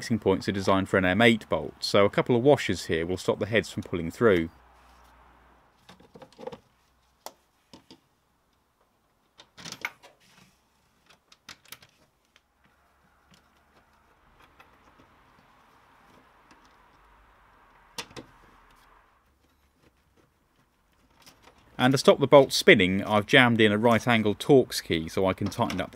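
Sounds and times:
bolts and washers clicking: 5.8s - 10.2s, 11.0s - 22.6s, 23.9s - 25.9s.

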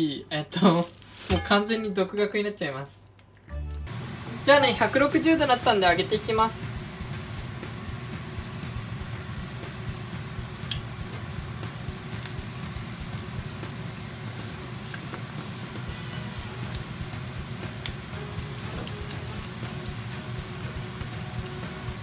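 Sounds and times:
chicken deep-frying in oil: 3.9s - 22.0s
chopsticks clicking: 10.6s - 10.9s.

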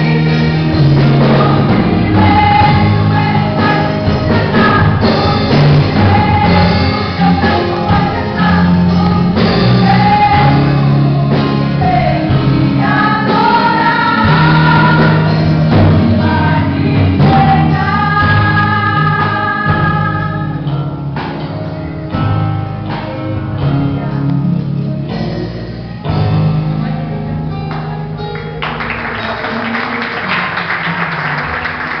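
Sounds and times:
women's group singing gospel: 0.0s - 20.6s
applause: 27.7s - 32.0s.

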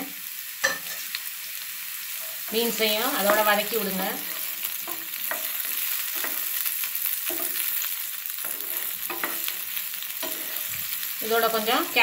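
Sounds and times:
vegetables sizzling in oil: 0.0s - 12.0s
wooden spatula scraping pan: 8.4s - 11.0s.

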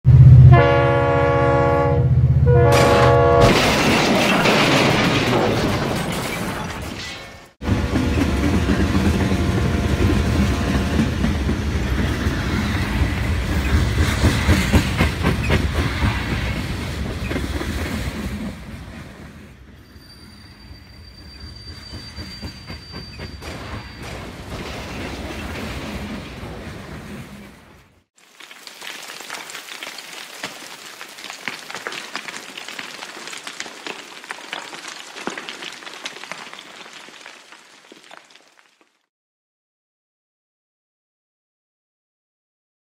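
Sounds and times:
train horn blowing: 0.1s - 3.5s
rolling train clatter: 7.6s - 27.8s.

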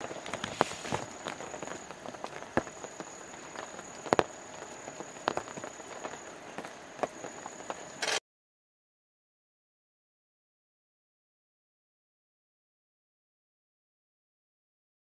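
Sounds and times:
steady hiss: 0.0s - 8.2s
sharp ticks: 8.0s - 8.2s
thin high whine: 8.0s - 8.2s.

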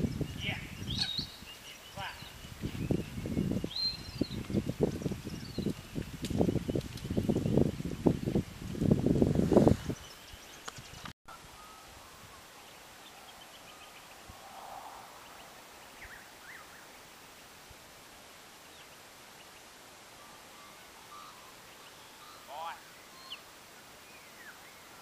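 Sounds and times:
open-air ambience: 0.0s - 25.0s
faint bird chirps: 18.7s - 25.0s.

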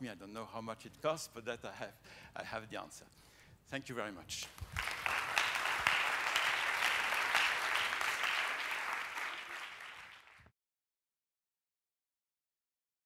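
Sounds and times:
audience applauding: 4.6s - 10.5s.

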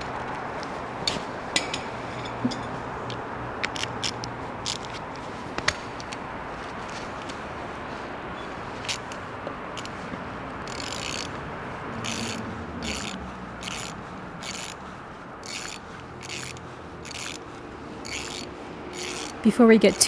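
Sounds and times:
ratchet wrench buzzing: 3.1s - 5.0s, 8.8s - 11.4s, 12.0s - 20.0s.

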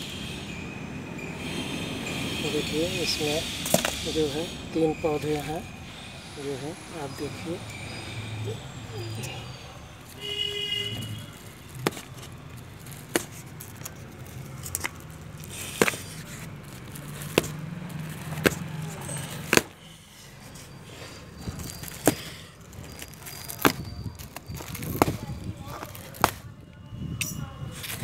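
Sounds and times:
cardboard box tearing: 11.0s - 19.7s.

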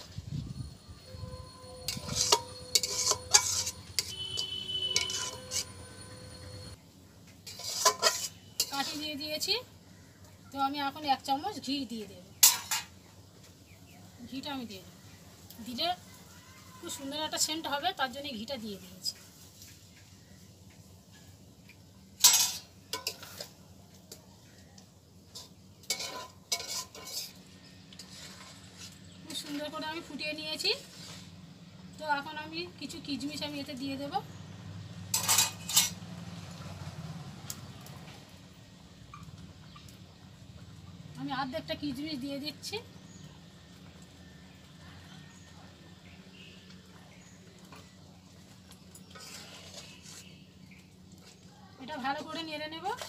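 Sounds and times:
metal spoon scraping a pan: 1.1s - 6.8s, 7.4s - 9.2s, 12.4s - 13.0s, 22.2s - 23.6s, 25.2s - 31.4s, 35.1s - 36.1s, 48.9s - 51.4s, 52.0s - 53.0s.

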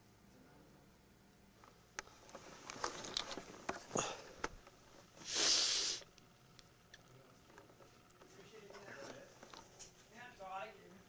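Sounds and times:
handling rustling and clicks: 1.6s - 4.8s
person breathing out close: 3.9s - 4.4s.

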